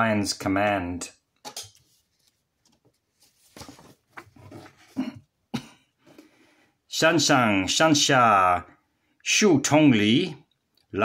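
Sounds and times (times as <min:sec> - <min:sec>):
paper page turning: 0:01.7 - 0:05.0
soft cough: 0:04.8 - 0:05.9.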